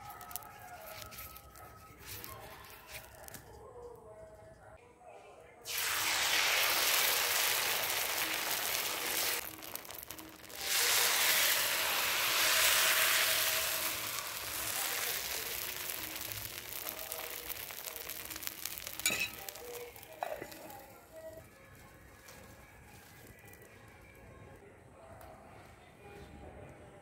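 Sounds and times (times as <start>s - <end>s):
batter sizzling in hot pan: 5.7s - 21.4s.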